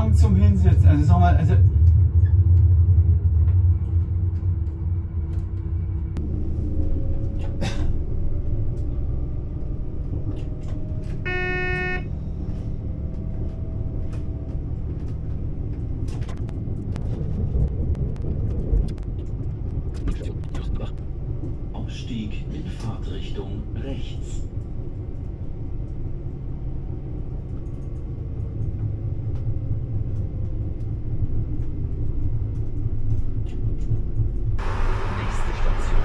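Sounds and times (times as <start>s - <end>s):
train rumbling on track: 0.0s - 36.0s
short clear tone: 11.3s - 12.1s.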